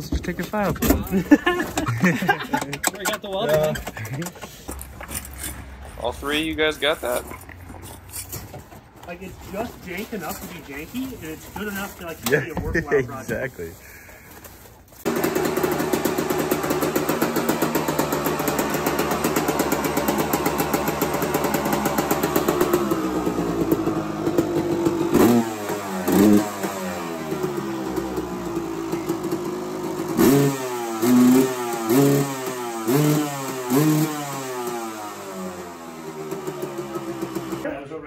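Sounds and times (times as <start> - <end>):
dirt bike engine revving: 15.0 - 37.7.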